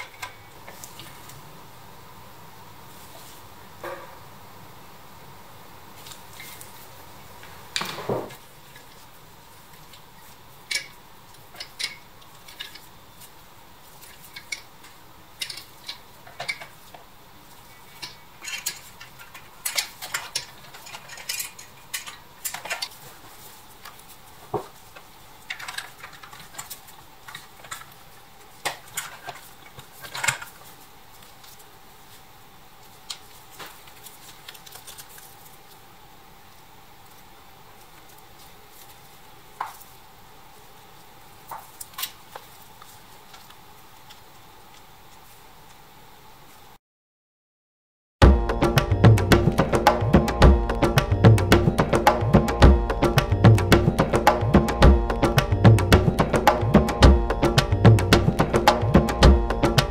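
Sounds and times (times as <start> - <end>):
faint hiss: 0.0 - 46.8.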